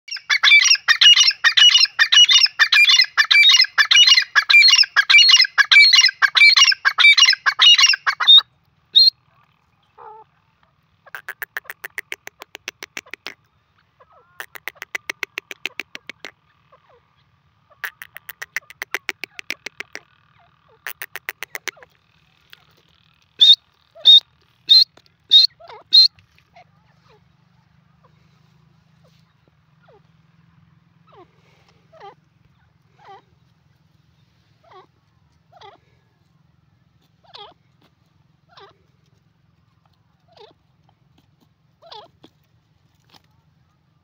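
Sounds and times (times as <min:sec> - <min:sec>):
francolin calling harshly: 0:00.1 - 0:08.4, 0:11.1 - 0:13.4, 0:14.3 - 0:16.3, 0:17.8 - 0:20.0, 0:20.9 - 0:21.8, 0:23.4 - 0:26.2
fast clicking bird notes: 0:11.2 - 0:13.4, 0:14.4 - 0:16.3, 0:17.8 - 0:20.0, 0:20.9 - 0:21.8.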